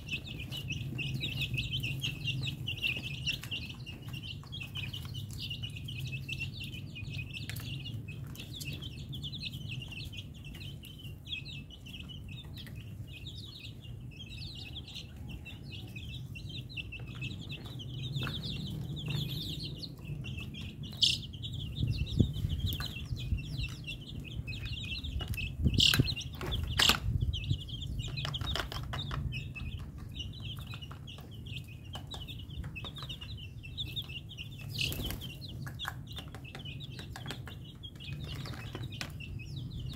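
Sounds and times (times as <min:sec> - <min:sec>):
chicks peeping: 0:00.0 - 0:39.9.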